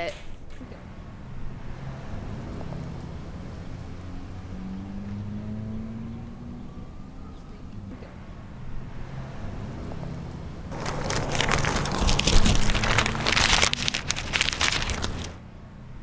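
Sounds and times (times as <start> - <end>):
paper tearing and crumpling: 10.7 - 15.4.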